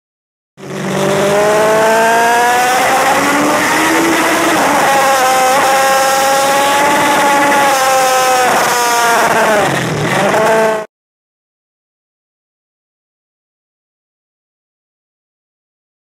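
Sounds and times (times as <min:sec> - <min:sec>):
motorcycle engine at high revs: 0:00.6 - 0:10.9.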